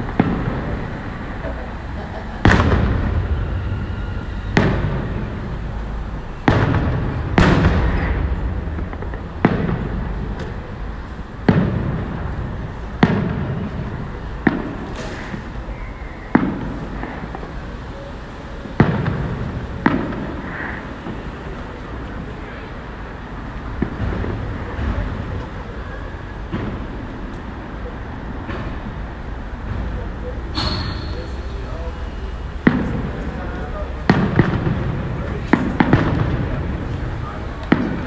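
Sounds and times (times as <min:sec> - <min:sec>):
distant firework shells bursting: 0:00.0 - 0:21.7, 0:32.5 - 0:38.0.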